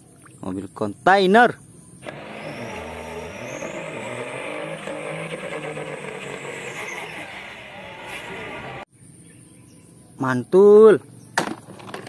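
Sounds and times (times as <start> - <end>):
diesel truck engine running hard: 2.0 - 8.9
high whine: 2.0 - 8.9
tyres spinning: 2.0 - 8.9.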